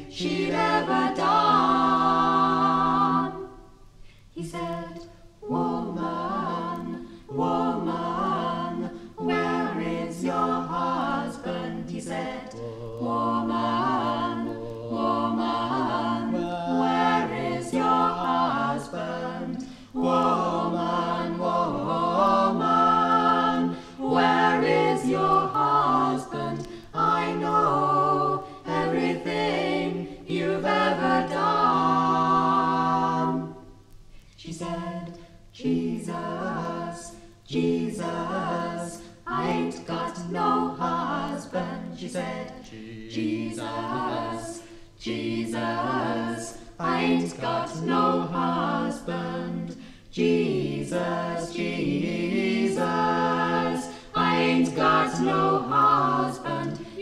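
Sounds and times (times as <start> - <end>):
group singing a cappella harmony: 0.0 - 57.0.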